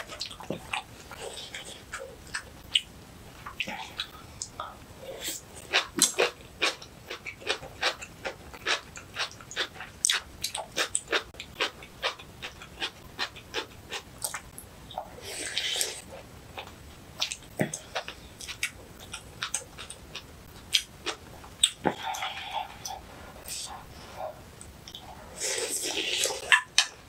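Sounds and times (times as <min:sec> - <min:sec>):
slurp: 0:25.0 - 0:26.6.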